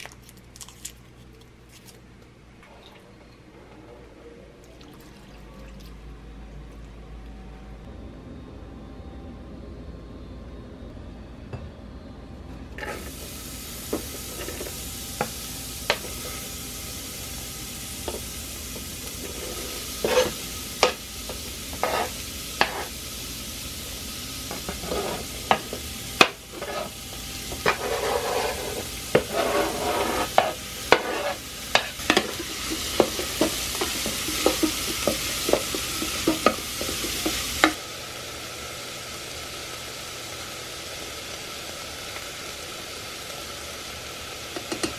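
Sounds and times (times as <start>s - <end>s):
vegetables sizzling in hot oil: 12.8s - 44.9s
wooden spoon scraping a pot: 19.2s - 20.4s, 21.7s - 22.9s, 24.6s - 25.4s, 26.2s - 37.4s.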